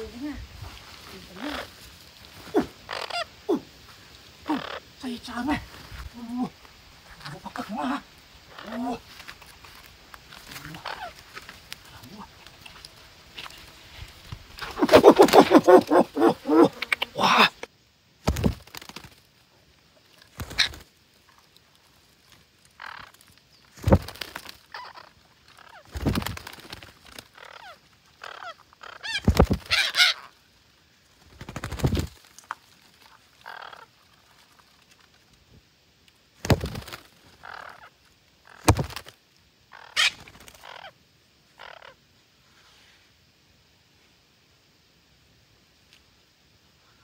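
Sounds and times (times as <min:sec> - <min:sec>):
parakeets squawking: 0:02.9 - 0:03.4, 0:10.7 - 0:11.2, 0:24.7 - 0:25.9, 0:27.4 - 0:30.3.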